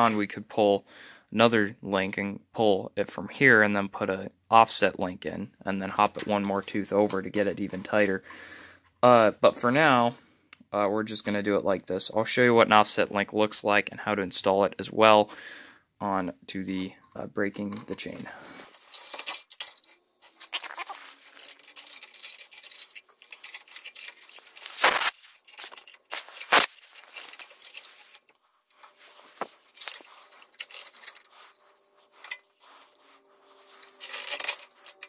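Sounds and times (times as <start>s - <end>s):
rustling: 18.4s - 35.0s
metal chain links clinking: 18.7s - 28.2s, 28.8s - 35.0s.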